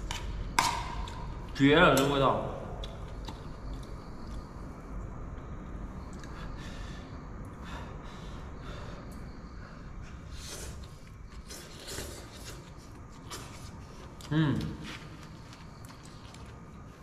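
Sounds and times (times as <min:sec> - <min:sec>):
man chewing: 0:02.8 - 0:04.6, 0:10.2 - 0:17.0.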